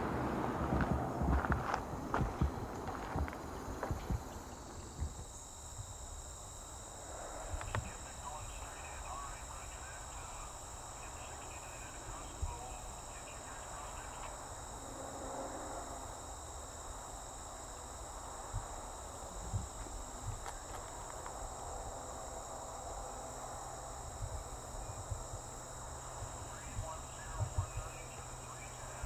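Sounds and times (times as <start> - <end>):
insects chirping chorus: 0.0 - 29.0
soft bumps: 0.6 - 5.9.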